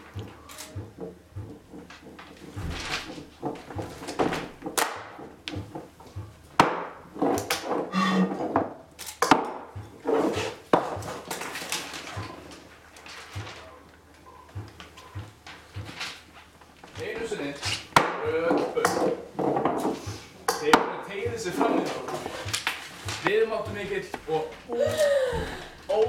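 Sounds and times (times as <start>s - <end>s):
knocks on wooden floor: 0.0s - 11.3s
person humming: 24.7s - 25.8s.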